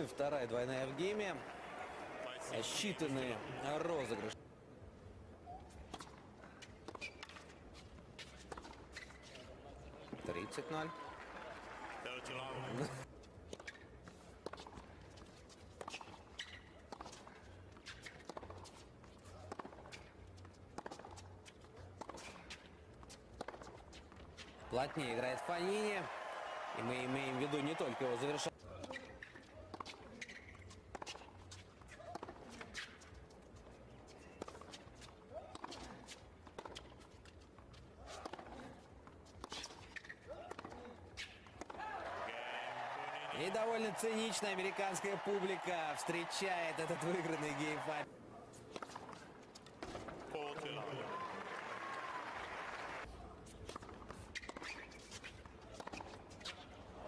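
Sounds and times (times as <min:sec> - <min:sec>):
tennis ball bounces: 0:34.4 - 0:37.0.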